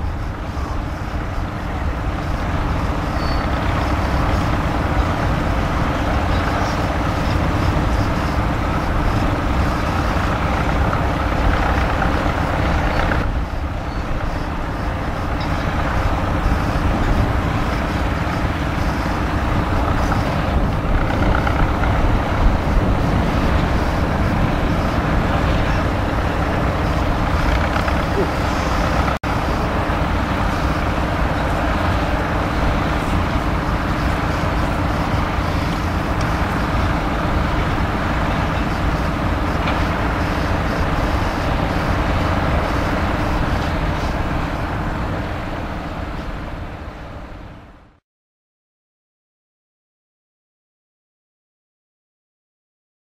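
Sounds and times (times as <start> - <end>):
tractor diesel engine under load: 0.0 - 48.0.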